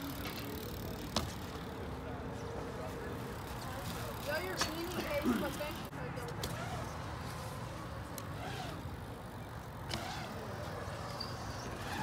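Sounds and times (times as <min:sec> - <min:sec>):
bike tyres rolling on concrete: 0:00.0 - 0:12.0.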